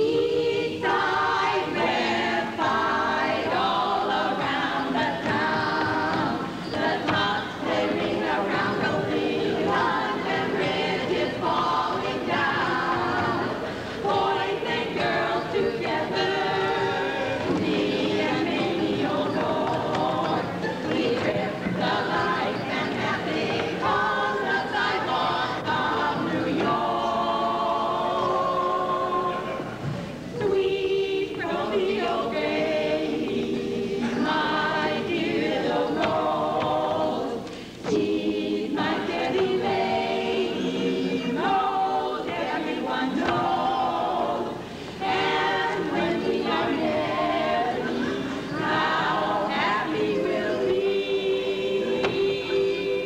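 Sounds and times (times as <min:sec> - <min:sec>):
choir singing in harmony: 0:00.0 - 0:53.0.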